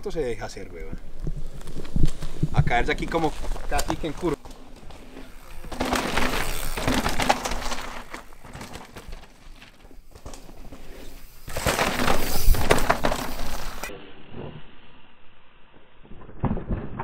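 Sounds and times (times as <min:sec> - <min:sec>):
bike tyres crunching on gravel: 0:00.4 - 0:13.9.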